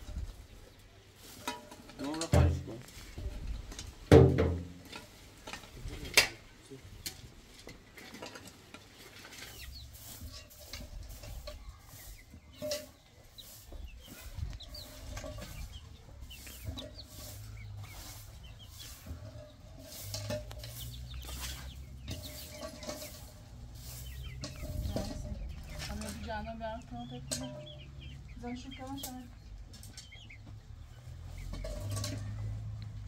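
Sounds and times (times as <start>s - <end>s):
broom sweeping ground: 0.0s - 5.9s, 7.4s - 30.0s
chickens clucking: 0.0s - 33.0s
shovels scraping dirt: 7.9s - 26.3s.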